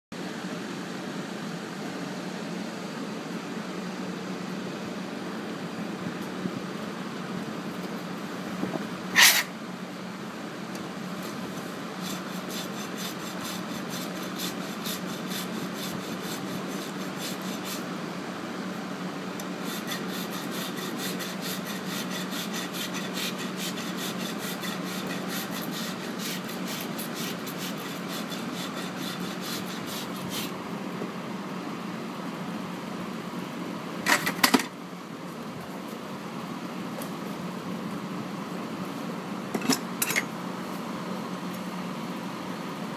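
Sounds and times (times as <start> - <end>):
hoof rasp filing strokes: 9.1 - 9.5, 11.2 - 17.9, 19.5 - 30.6.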